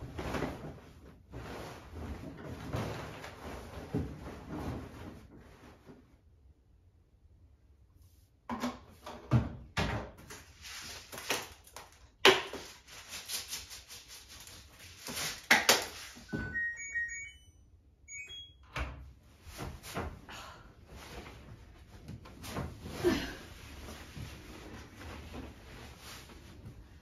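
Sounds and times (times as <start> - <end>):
washing machine electronic beeps: 16.3 - 19.0.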